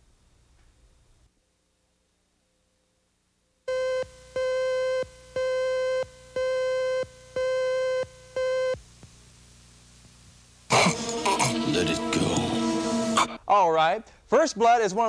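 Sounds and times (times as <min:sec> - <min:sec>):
buzzy electronic beeps: 0:03.7 - 0:08.8.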